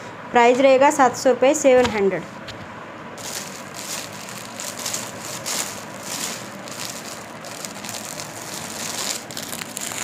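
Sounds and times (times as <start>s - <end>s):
cloth rustling: 3.2s - 10.0s.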